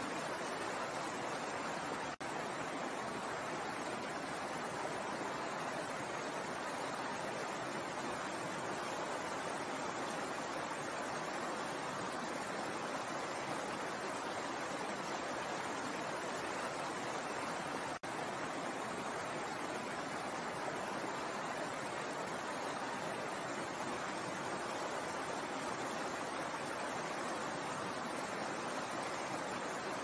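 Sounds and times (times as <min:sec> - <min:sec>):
stream flowing over stones: 0:00.0 - 0:30.0.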